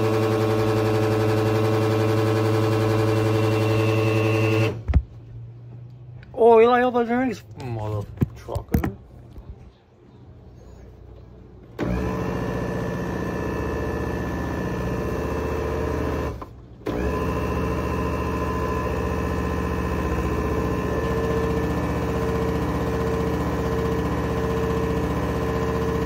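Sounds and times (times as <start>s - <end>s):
blender motor humming: 0.0s - 4.8s, 11.8s - 26.0s.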